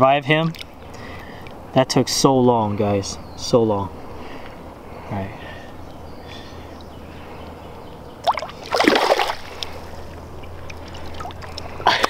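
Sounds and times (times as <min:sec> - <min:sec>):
river water sloshing: 0:00.4 - 0:01.7, 0:05.6 - 0:12.0
fish splashing: 0:08.2 - 0:11.8.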